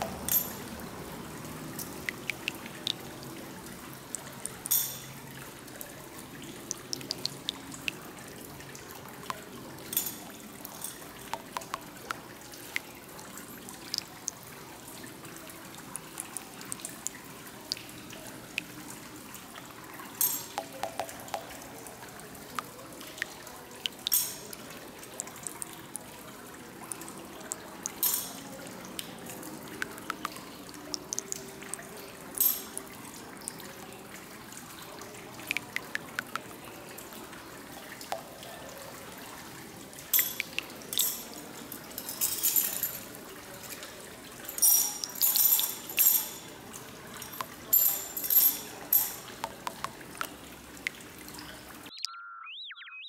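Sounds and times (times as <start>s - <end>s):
fountain trickling and dripping: 0.0s - 52.0s.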